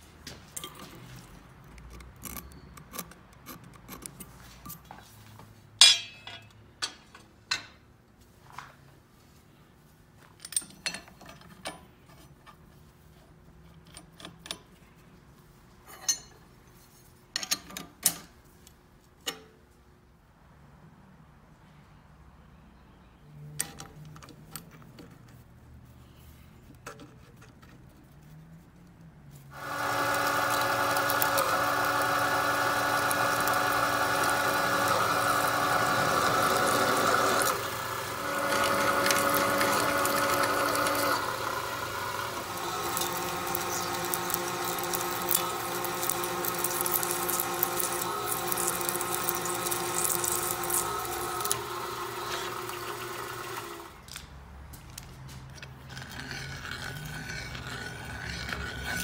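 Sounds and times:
drill cutting through steel: 29.6s - 53.8s
milling machine gear whine: 29.6s - 53.8s.

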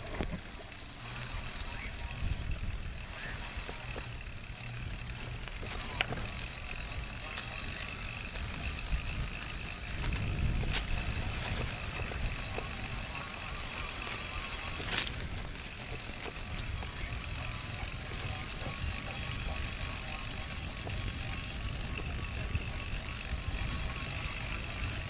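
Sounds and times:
faint high whine: 0.0s - 25.0s
tyres rumbling on dirt: 0.0s - 25.0s
wind on microphone: 5.6s - 25.0s.

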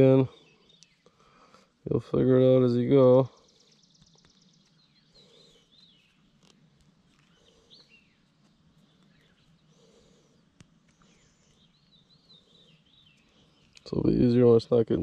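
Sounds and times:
faint birds chirping: 0.0s - 15.0s.

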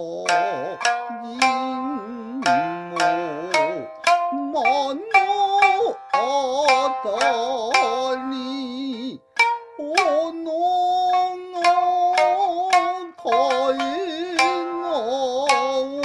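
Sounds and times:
person singing long wavering notes: 0.0s - 16.0s
plucked shamisen strokes: 0.0s - 16.0s.

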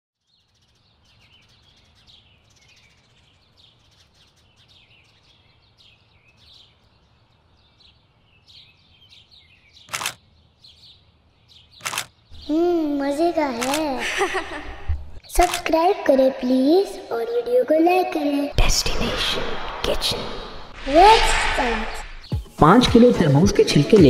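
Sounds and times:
birds chirping: 0.2s - 17.2s, 18.3s - 24.0s
faint low rumble: 18.6s - 22.2s
sharp burst of noise: 18.6s - 22.2s.

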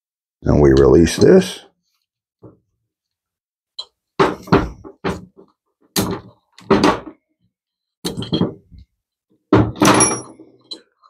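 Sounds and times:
metal tool clunking and knocking: 3.8s - 7.3s, 8.0s - 11.0s.

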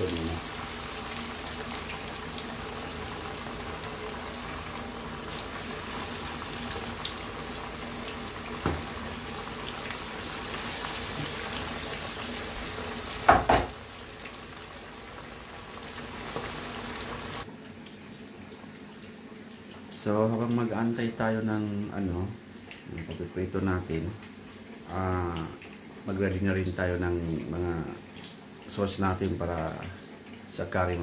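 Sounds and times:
fish sizzling in hot oil: 0.0s - 17.5s.

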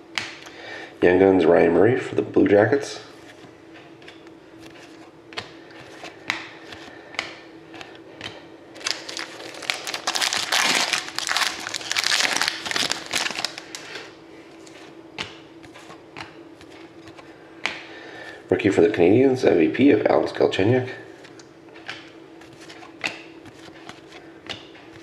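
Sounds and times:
foil wrapper crinkling: 8.8s - 14.1s.

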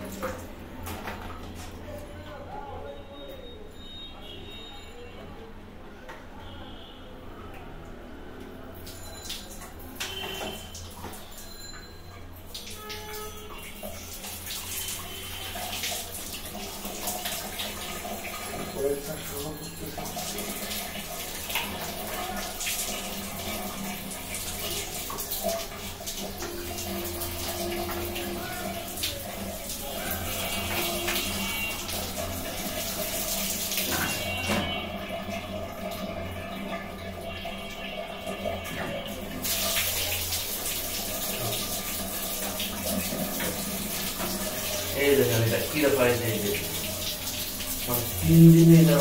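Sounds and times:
water running: 0.0s - 2.1s, 7.9s - 49.0s
water splashing: 12.5s - 49.0s.

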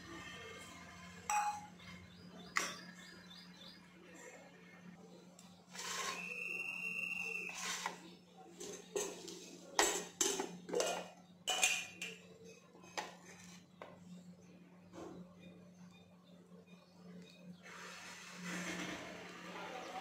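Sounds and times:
metal dishes clinking: 1.3s - 1.8s, 7.8s - 13.7s.

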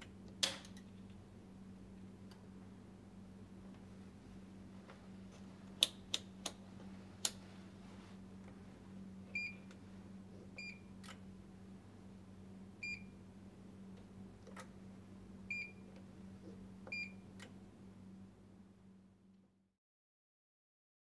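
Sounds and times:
steady low hum: 0.0s - 19.6s.

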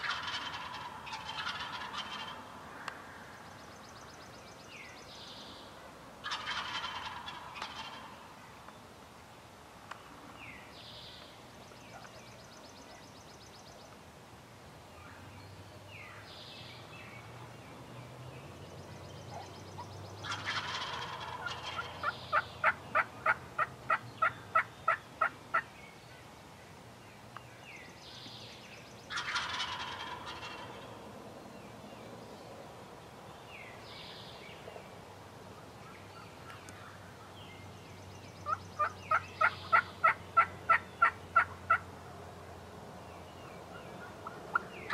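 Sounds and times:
turkey yelps: 0.0s - 2.4s, 6.2s - 8.1s, 20.2s - 25.6s, 29.1s - 30.8s
turkeys gobbling: 0.0s - 2.5s, 6.2s - 8.2s, 20.2s - 25.6s, 29.1s - 30.8s, 38.4s - 41.8s, 44.2s - 44.9s.

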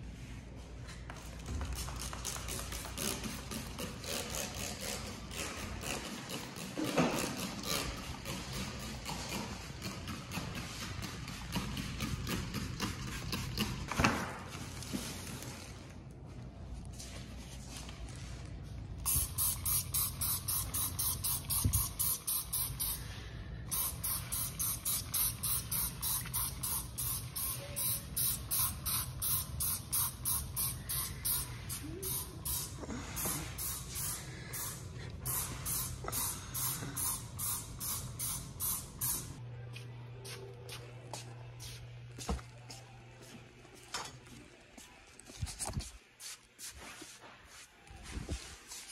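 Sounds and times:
spray bottle squirting: 19.0s - 23.0s, 23.7s - 39.4s.

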